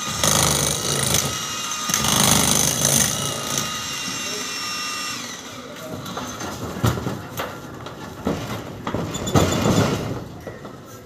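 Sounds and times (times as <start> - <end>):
jackhammer motor whine: 0.0 - 5.6
footsteps on metal roof sheets: 6.2 - 11.0.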